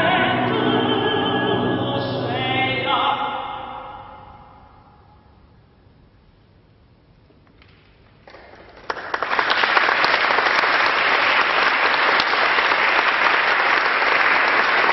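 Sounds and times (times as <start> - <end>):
audience applause: 8.2 - 14.9.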